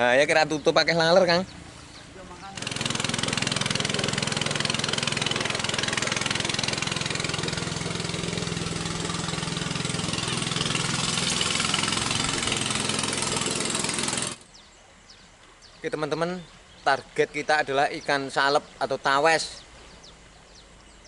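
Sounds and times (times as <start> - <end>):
outboard engine running: 0.0 - 14.6.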